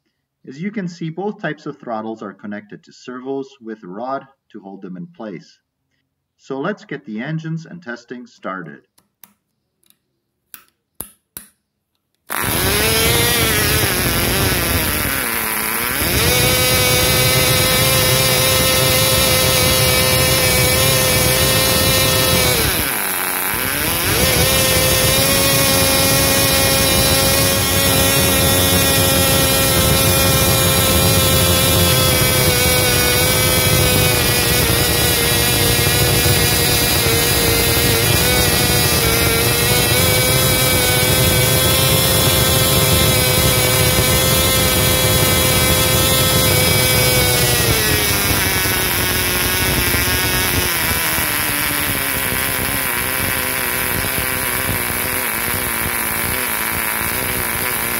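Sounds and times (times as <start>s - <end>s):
model engine high-pitched whine: 12.3s - 57.9s.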